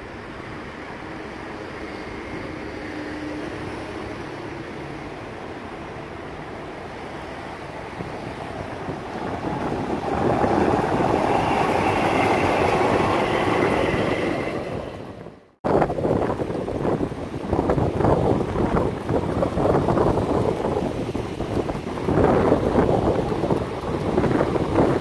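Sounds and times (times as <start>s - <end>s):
tram wheels rolling on rails: 0.0s - 25.0s
wind on microphone: 5.4s - 25.0s.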